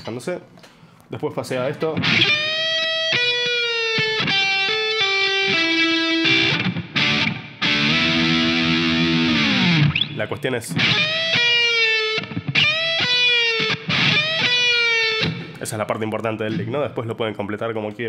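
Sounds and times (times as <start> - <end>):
electric guitar lick: 1.9 - 15.6.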